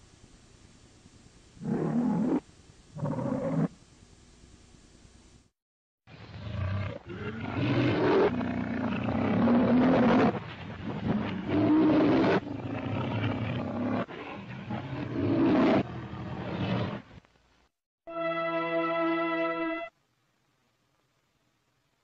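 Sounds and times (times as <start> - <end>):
lion roaring: 6.4 - 17.0.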